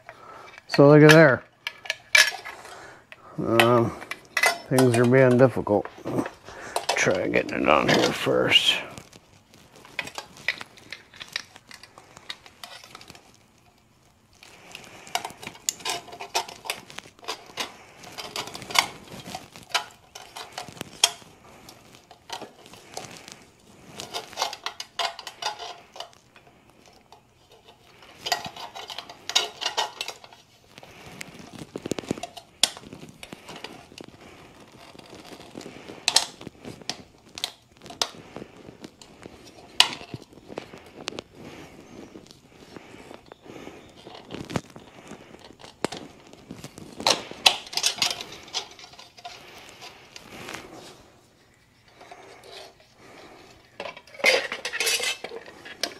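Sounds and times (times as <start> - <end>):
metal parts clinking and rattling: 0.0 - 2.8, 3.4 - 9.1, 9.8 - 13.3, 14.5 - 30.5, 45.4 - 50.3, 52.0 - 55.9.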